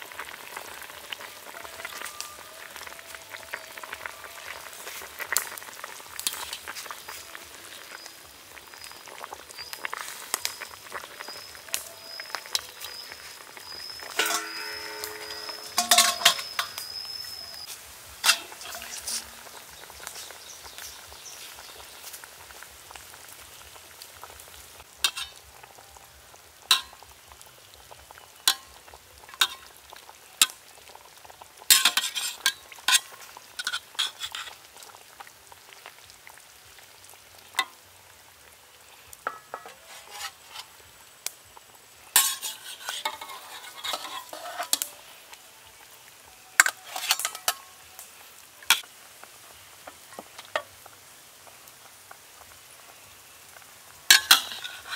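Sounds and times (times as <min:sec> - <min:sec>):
meat sizzling in sauce: 0:00.0 - 0:54.9
metal ladle scraping pot: 0:13.8 - 0:19.3, 0:25.1 - 0:25.4, 0:31.7 - 0:34.6, 0:39.3 - 0:40.8, 0:42.2 - 0:45.0, 0:46.6 - 0:47.7, 0:54.1 - 0:54.9.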